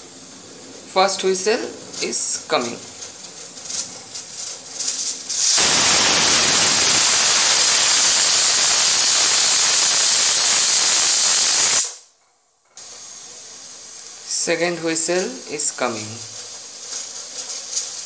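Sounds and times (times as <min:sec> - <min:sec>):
pressure cooker steam hissing: 0:04.5 - 0:12.0, 0:16.1 - 0:18.0.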